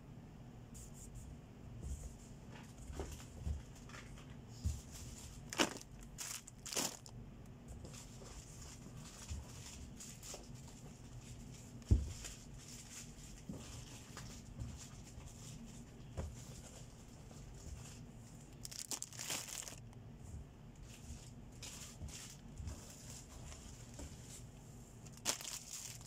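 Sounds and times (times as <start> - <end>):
plastic wrappers crinkling: 5.0 - 7.2, 18.4 - 20.0, 25.0 - 26.0.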